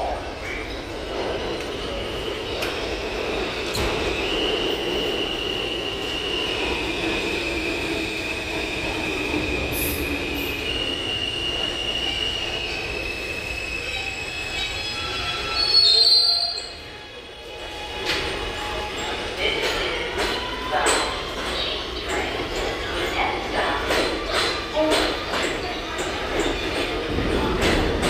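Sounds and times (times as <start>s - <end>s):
subway train rumble: 0.0s - 28.0s.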